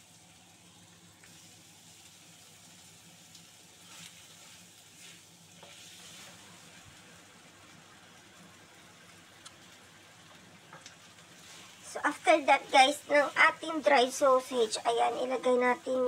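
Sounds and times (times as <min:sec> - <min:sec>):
food sizzling in a wok: 0:00.0 - 0:16.0
spatula scraping a wok: 0:03.8 - 0:06.6, 0:11.4 - 0:11.9.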